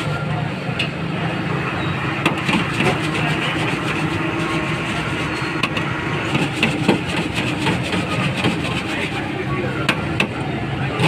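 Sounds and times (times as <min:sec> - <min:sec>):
deep fryer hum and hiss: 0:00.0 - 0:11.0.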